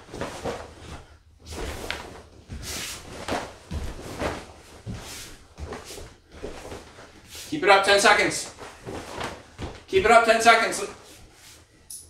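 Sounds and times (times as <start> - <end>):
bare feet on wooden floor: 0.0 - 7.5, 8.5 - 10.0
fabric swishes and snaps: 0.0 - 7.5, 8.4 - 10.0.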